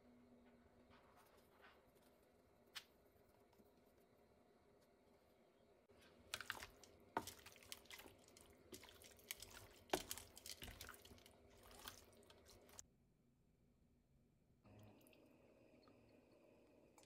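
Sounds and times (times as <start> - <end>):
wet squishing of chicken in bowl: 5.9 - 12.8.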